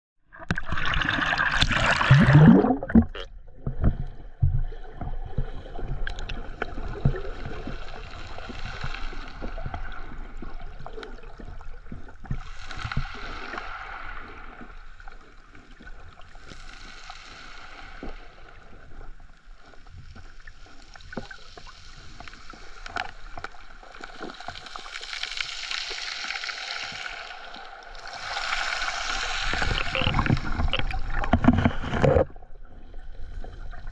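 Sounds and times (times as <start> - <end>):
water sloshing underwater: 0.2 - 33.9
small underwater clicks: 6.0 - 7.8, 20.2 - 27.3.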